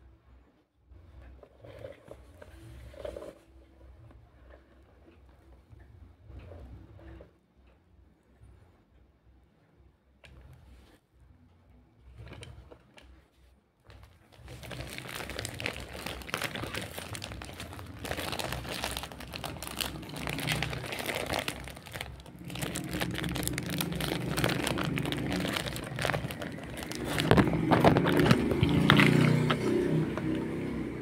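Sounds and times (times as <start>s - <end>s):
plastic bag crinkling: 13.9s - 30.4s.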